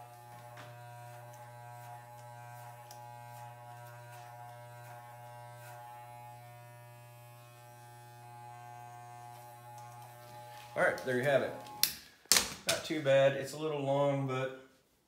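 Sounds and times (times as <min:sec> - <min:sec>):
electric hair clippers buzzing: 0:00.0 - 0:12.0.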